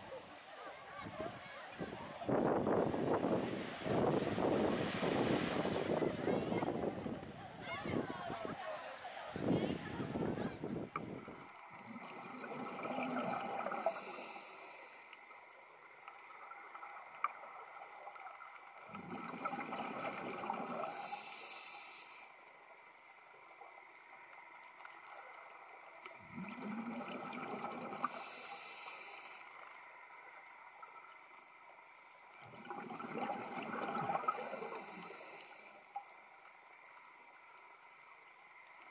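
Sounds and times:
underwater exhaled bubbles gurgling: 0:10.8 - 0:14.6, 0:15.5 - 0:22.0, 0:23.5 - 0:31.4, 0:32.3 - 0:36.8
regulator hiss: 0:13.6 - 0:15.4, 0:20.8 - 0:22.8, 0:28.0 - 0:29.8, 0:34.3 - 0:35.9.

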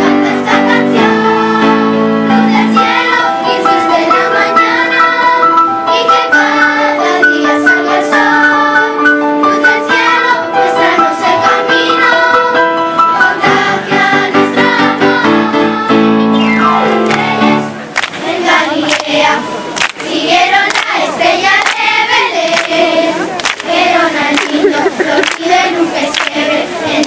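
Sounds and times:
electric keyboard: 0:00.0 - 0:18.6
children's choir singing a carol: 0:00.0 - 0:27.0
hand claps: 0:17.0 - 0:17.3, 0:17.9 - 0:18.2, 0:18.8 - 0:19.2, 0:19.8 - 0:21.0, 0:21.6 - 0:21.8, 0:22.4 - 0:22.8, 0:23.4 - 0:26.4.

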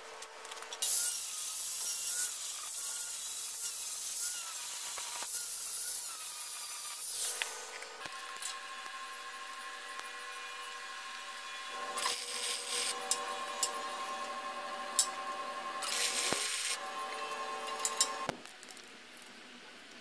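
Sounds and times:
angle grinder grinding steel: 0:00.8 - 0:18.3.

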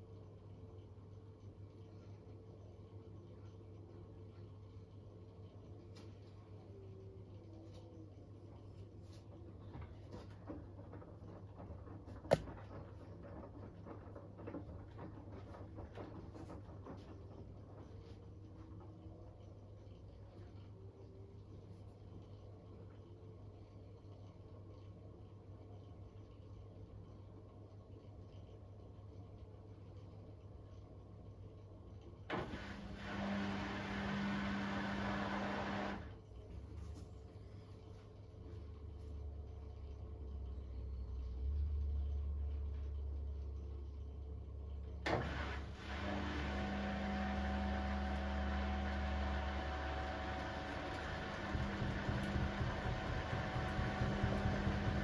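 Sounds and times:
washing machine motor hum: 0:00.0 - 0:55.0
wet laundry thudding: 0:09.5 - 0:17.8.

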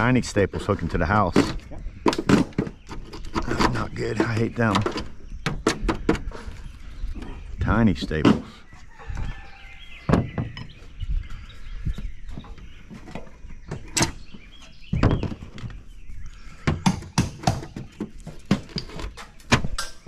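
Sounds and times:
gutter being pried loose: 0:00.7 - 0:06.6, 0:16.6 - 0:20.0.

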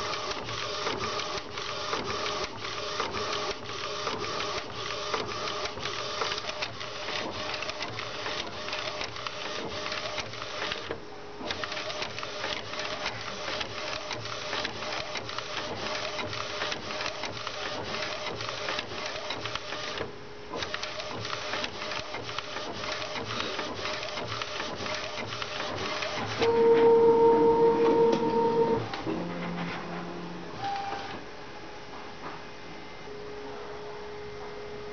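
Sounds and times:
printer carriage clattering: 0:27.8 - 0:30.2.

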